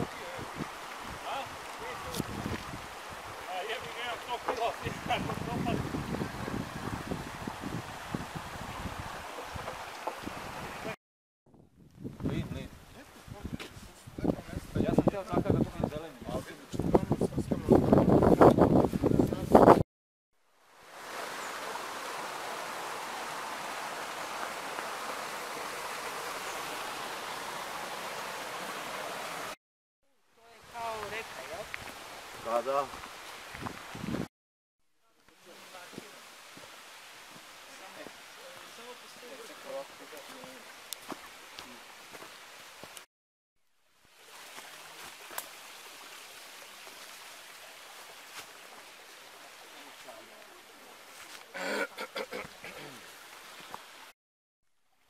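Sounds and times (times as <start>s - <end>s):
stream running water: 0.0s - 11.0s, 20.4s - 29.6s, 30.4s - 34.3s, 35.2s - 43.1s, 43.8s - 54.2s.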